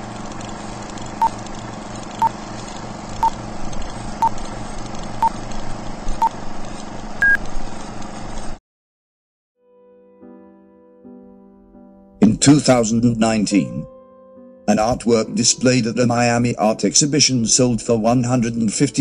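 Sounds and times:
film projector whirring: 0.0 - 8.6.

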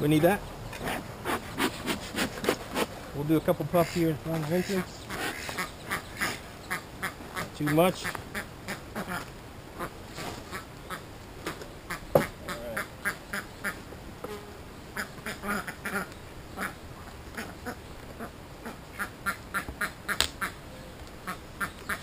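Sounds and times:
ducks quacking: 3.7 - 13.8, 14.9 - 20.6.

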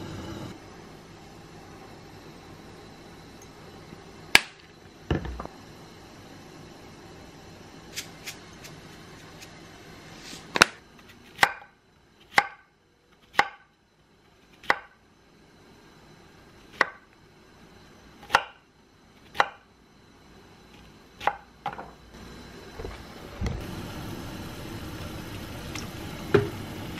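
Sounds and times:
knife chopping on wooden board: 13.3 - 13.6.

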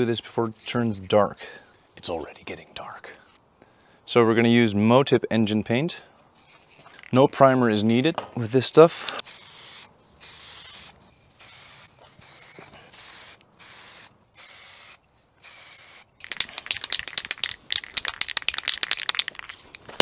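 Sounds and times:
aerosol spray can hissing: 9.3 - 19.3
rapid clicking and rattling: 16.2 - 19.7.

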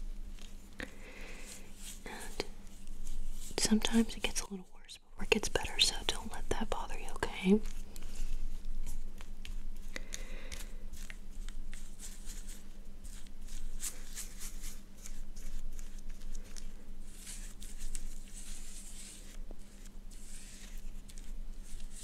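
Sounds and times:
faint steady hum: 0.0 - 22.0
rubbing and wiping on lens: 10.5 - 22.0.

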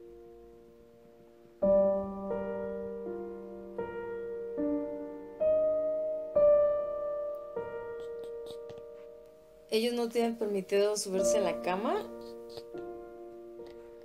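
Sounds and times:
slow gentle piano music: 0.0 - 14.0.

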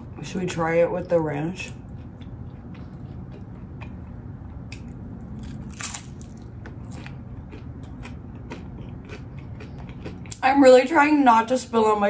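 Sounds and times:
crunchy bites and chewing: 1.7 - 10.4.

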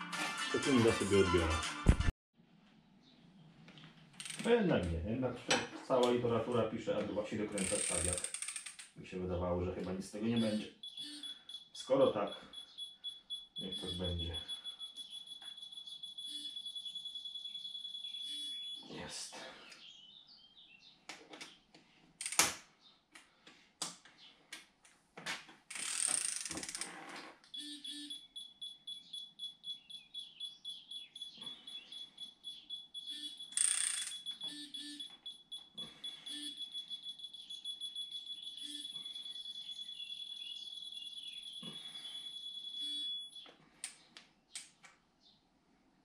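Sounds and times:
high-pitched electronic beeper tone: 10.3 - 19.0, 27.5 - 43.4.

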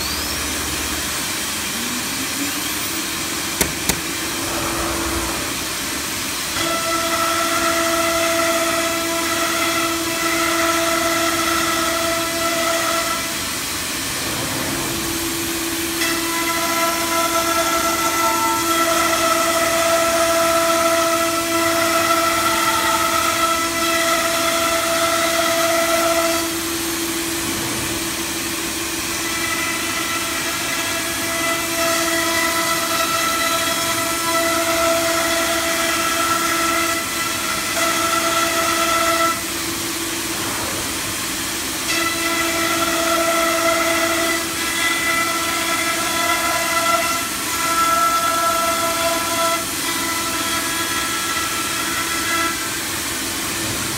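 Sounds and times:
router spindle whine: 0.0 - 6.7.

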